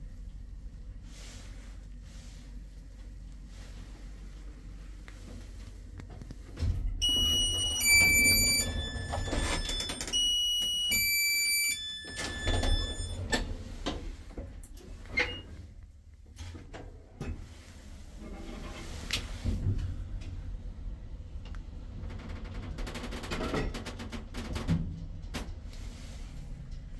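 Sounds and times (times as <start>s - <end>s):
low rumble: 0.0s - 6.2s, 19.4s - 22.8s.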